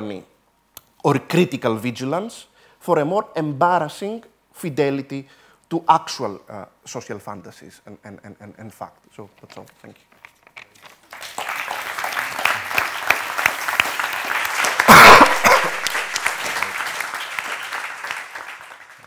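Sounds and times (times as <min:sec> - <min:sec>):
audience applauding: 0:11.0 - 0:19.0.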